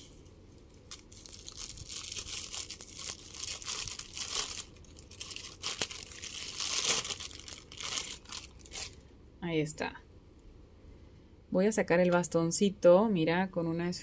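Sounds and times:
plastic wrapping crinkling: 0:00.0 - 0:09.0.

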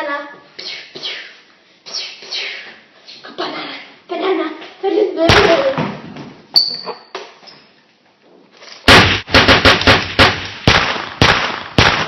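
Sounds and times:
gunshots: 0:08.9 - 0:12.0.

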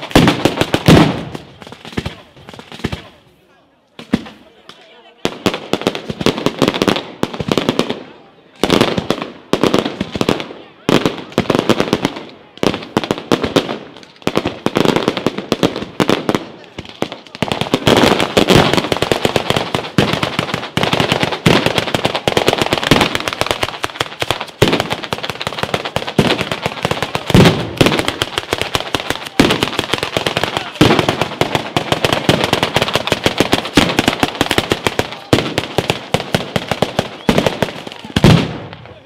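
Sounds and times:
firecracker chains crackling: 0:13.8 - 0:38.6
heavy firecracker reports: 0:24.0 - 0:39.0.

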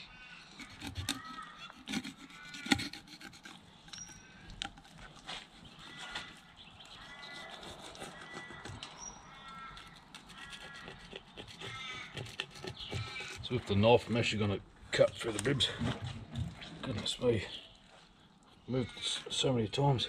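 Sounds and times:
knife rasping on fish: 0:00.6 - 0:04.0, 0:07.0 - 0:08.6, 0:09.8 - 0:13.5.

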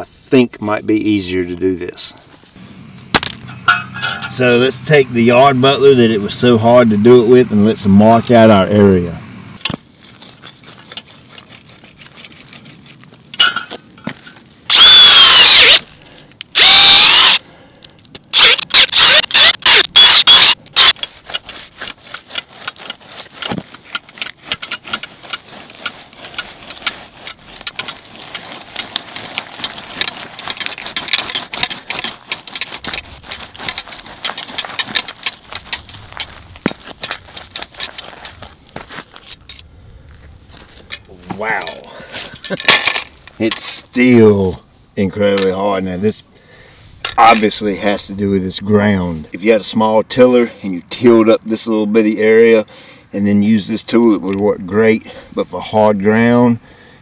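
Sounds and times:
blade scraping into hard soil: 0:09.7 - 0:13.3, 0:18.4 - 0:39.6.

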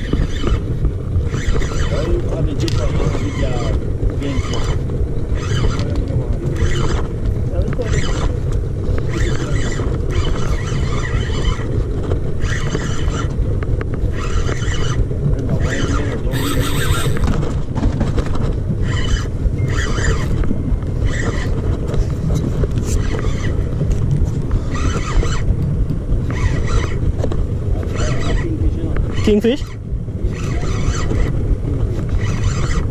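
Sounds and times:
fishing reel cranking: 0:00.0 - 0:07.1, 0:07.8 - 0:08.3, 0:09.1 - 0:11.7, 0:12.4 - 0:13.3, 0:14.1 - 0:15.0, 0:15.6 - 0:17.4, 0:18.8 - 0:20.4, 0:24.7 - 0:25.5, 0:26.3 - 0:27.0, 0:27.9 - 0:31.3, 0:32.1 - 0:32.9
wind: 0:00.0 - 0:32.9.

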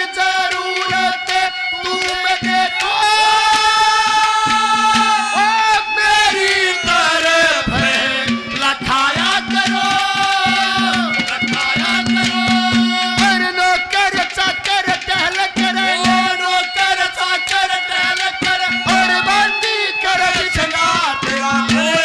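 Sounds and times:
wavering folk melody: 0:00.0 - 0:22.0
hand drum strokes: 0:06.8 - 0:13.5.

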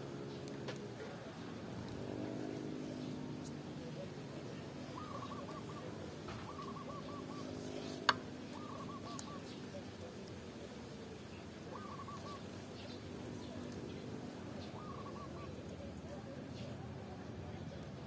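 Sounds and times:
bird calling: 0:02.8 - 0:10.3, 0:11.1 - 0:16.8.

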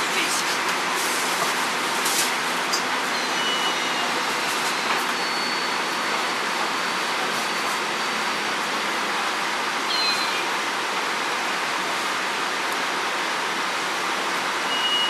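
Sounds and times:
bus engine idling: 0:00.0 - 0:15.0
falling high squeak: 0:03.2 - 0:05.7.

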